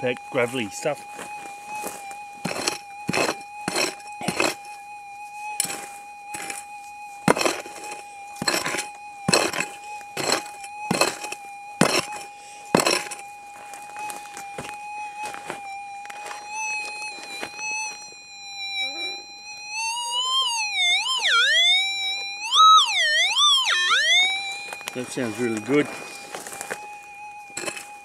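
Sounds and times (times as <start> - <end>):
steady high-pitched tone: 0.0 - 28.0
pick striking gravelly soil: 1.8 - 4.6, 5.6 - 6.6, 7.3 - 14.3, 24.7 - 26.8, 27.5 - 28.0.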